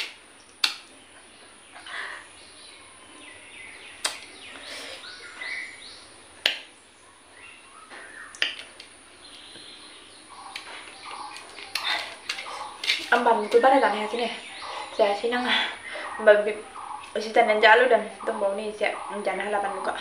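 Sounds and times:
mouth clicks or crunches: 0:00.0 - 0:01.0, 0:04.0 - 0:04.3, 0:08.3 - 0:09.0, 0:10.3 - 0:13.6.

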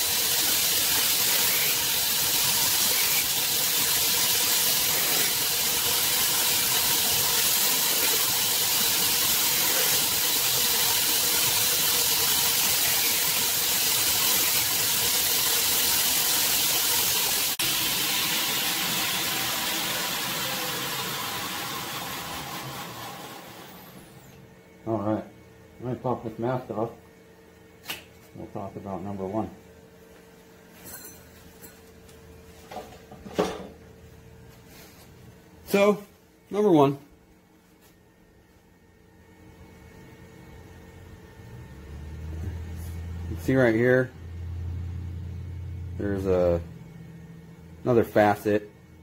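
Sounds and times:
grinder winding down: 0:00.1 - 0:24.4.

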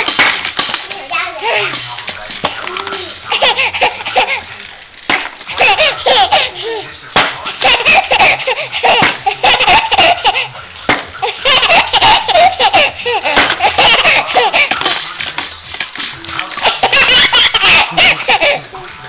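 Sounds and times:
baby laughing: 0:01.1 - 0:01.9, 0:02.6 - 0:04.5, 0:05.5 - 0:06.9, 0:07.5 - 0:10.6, 0:11.2 - 0:15.0, 0:16.5 - 0:18.9.

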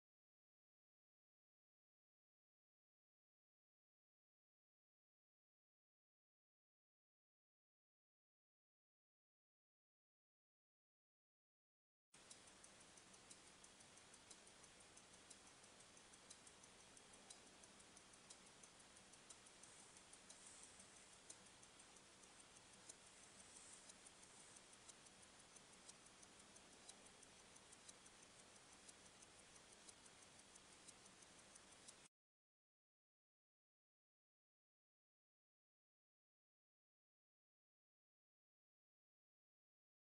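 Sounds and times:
watch ticking fast: 0:12.2 - 0:32.1.

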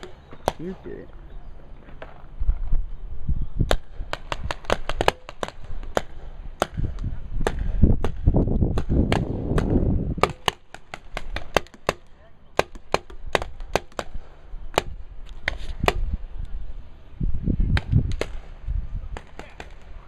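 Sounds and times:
paintball markers firing: 0:03.6 - 0:16.2, 0:17.7 - 0:18.5, 0:19.1 - 0:20.0.

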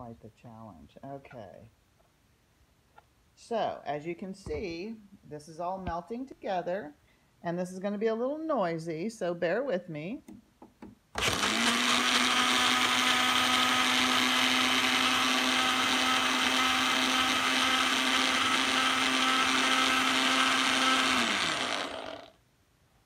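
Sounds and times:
blender running at high speed: 0:11.2 - 0:22.4.

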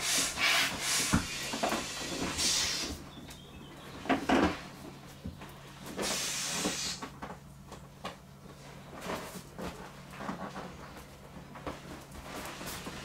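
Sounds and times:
air hissing from a pump: 0:00.0 - 0:03.0, 0:05.9 - 0:07.1
knocks and rubbing on vinyl: 0:00.2 - 0:02.6.

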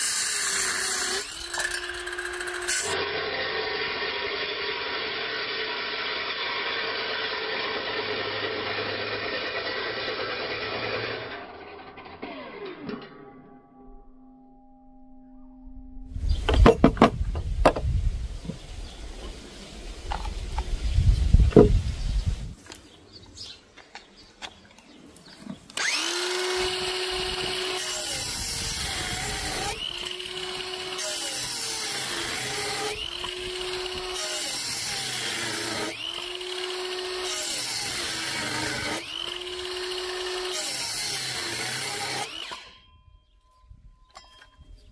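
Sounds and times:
circular saw motor whining: 0:00.0 - 0:14.3, 0:25.8 - 0:43.4.

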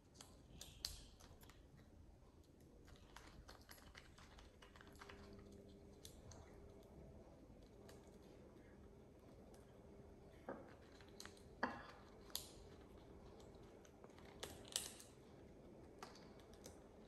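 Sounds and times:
parrot cracking a nut: 0:14.1 - 0:15.2.

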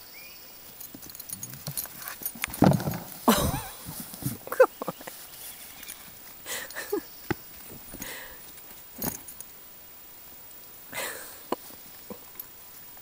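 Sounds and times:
rustling on straw: 0:01.4 - 0:09.0.

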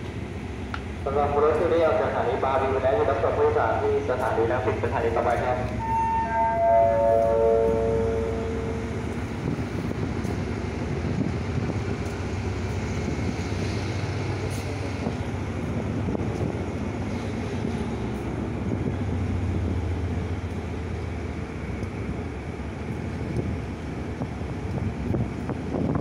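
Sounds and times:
train rumbling: 0:00.0 - 0:26.0
descending chime: 0:05.8 - 0:08.9.

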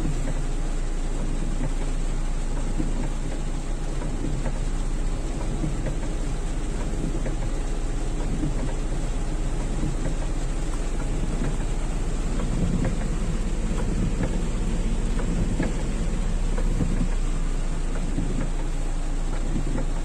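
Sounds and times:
moving car low rumble: 0:00.0 - 0:20.0
rain pattering on car roof: 0:00.0 - 0:20.0.

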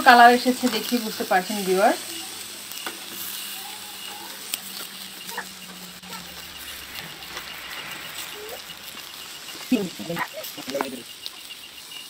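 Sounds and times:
prawns sizzling on grill: 0:00.0 - 0:12.0
faint animal calls: 0:03.4 - 0:10.7.

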